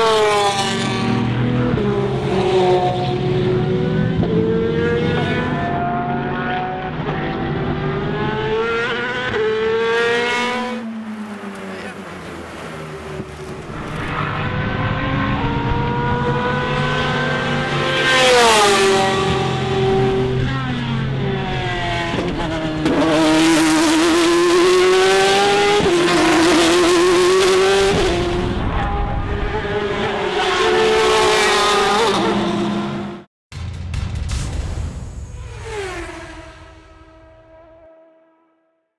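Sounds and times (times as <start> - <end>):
race car engines revving: 0.0 - 33.3, 35.4 - 37.9
race car passing by: 35.4 - 38.5.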